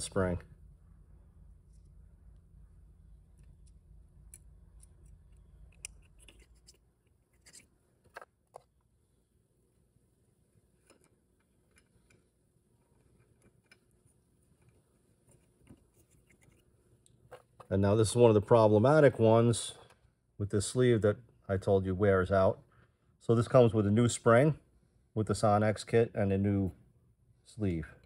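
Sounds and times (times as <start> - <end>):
low hum: 0.0 - 6.8.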